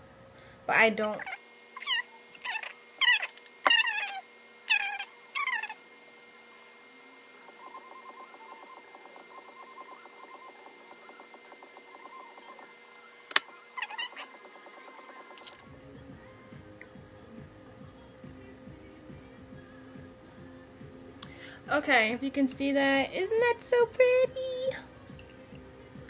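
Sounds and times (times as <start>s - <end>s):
small animal high-pitched calls: 1.2s - 5.8s, 13.8s - 14.4s.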